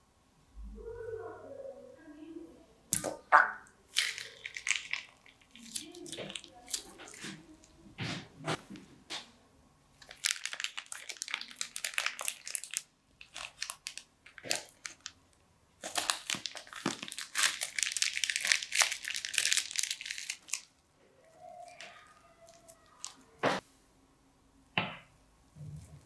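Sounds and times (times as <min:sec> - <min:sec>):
plastic bag crinkling: 0:03.9 - 0:07.8, 0:10.0 - 0:15.2, 0:15.8 - 0:20.8, 0:21.6 - 0:23.4.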